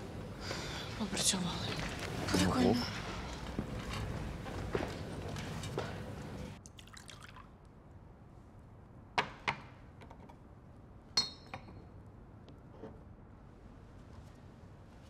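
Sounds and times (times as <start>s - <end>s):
liquor pouring into glass: 6.7s - 7.5s.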